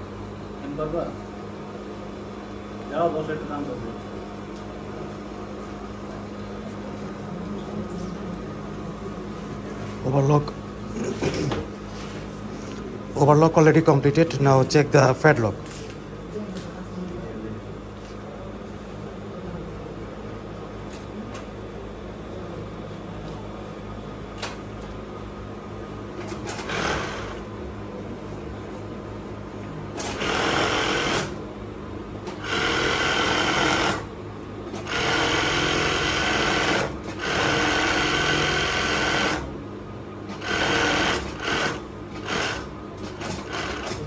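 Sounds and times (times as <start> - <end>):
steady low hum: 0.0 - 44.0
sewing machine running: 26.2 - 27.4, 30.0 - 31.4, 32.4 - 34.1, 34.7 - 39.5, 40.3 - 44.0.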